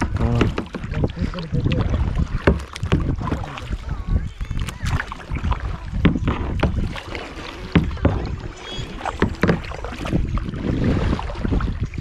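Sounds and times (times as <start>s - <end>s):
paddle splashes: 0.0s - 12.0s
sharp knocks: 0.4s - 0.9s, 9.2s - 9.7s.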